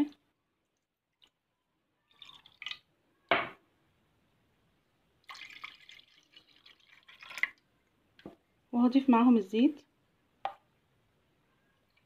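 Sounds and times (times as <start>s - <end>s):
water pouring into pan: 2.1s - 2.9s, 5.2s - 7.6s.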